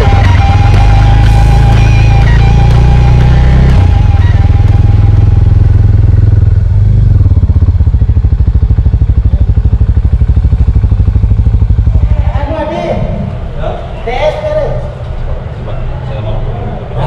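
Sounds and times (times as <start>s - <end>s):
motorcycle engine idling: 0.0s - 13.6s.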